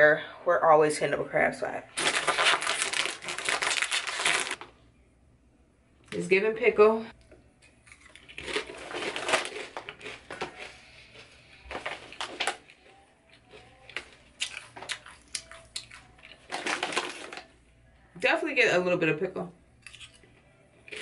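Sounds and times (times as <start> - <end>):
chewing crunchy potato chips: 7.6 - 17.5, 19.8 - 21.0.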